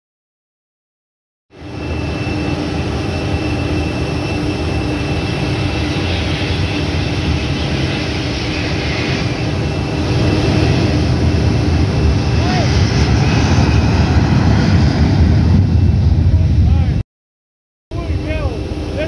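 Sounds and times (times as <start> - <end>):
jet engine rumble and whine: 1.5 - 17.0, 17.9 - 19.0.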